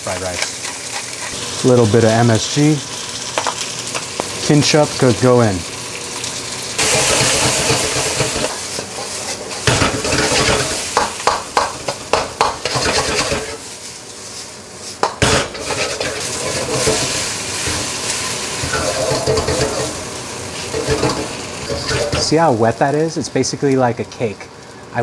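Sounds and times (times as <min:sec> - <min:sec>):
rice sizzling in a wok: 0:00.0 - 0:25.0
metal ladle scraping a wok: 0:06.8 - 0:10.8, 0:15.5 - 0:20.0, 0:20.6 - 0:22.3.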